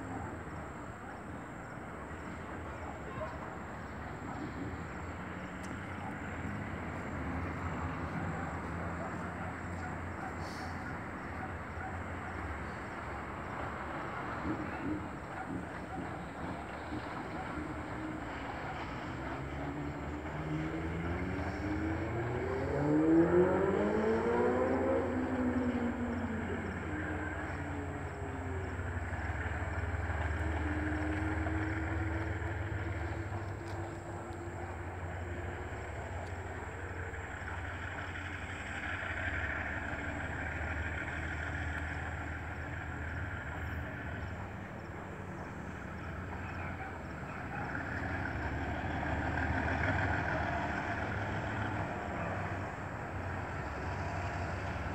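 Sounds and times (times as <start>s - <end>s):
vehicle engine revving: 3.8s - 54.9s
faint steady tones: 24.9s - 54.9s.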